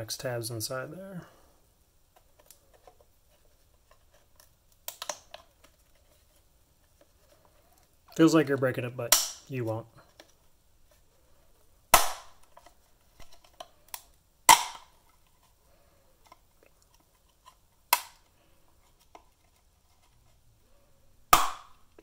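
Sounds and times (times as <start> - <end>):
plastic tabs snapping: 4.4 - 5.8.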